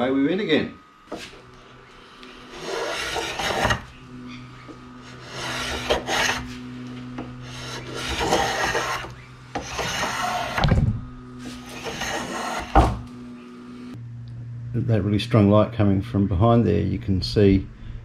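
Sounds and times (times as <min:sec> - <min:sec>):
hand plane shaving wood: 0:02.2 - 0:04.0, 0:04.6 - 0:10.6, 0:11.4 - 0:13.0.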